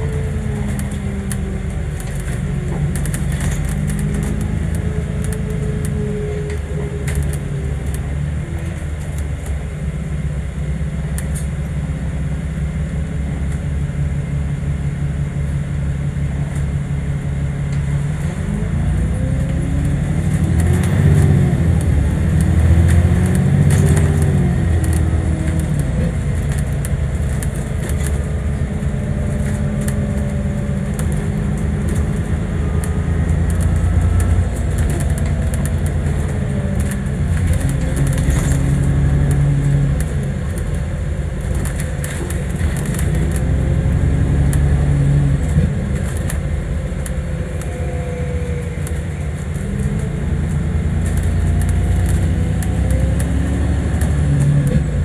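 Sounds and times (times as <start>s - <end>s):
small rattles and clicks: 0.0s - 8.0s, 19.4s - 44.6s, 45.4s - 55.0s
bus engine rumble: 0.0s - 55.0s.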